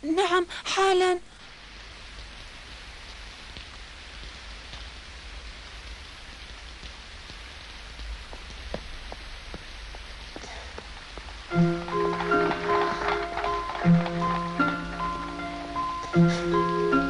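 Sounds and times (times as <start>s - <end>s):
steady rain falling: 0.0s - 17.0s
footsteps on wet pavement: 3.4s - 5.0s, 5.6s - 15.4s.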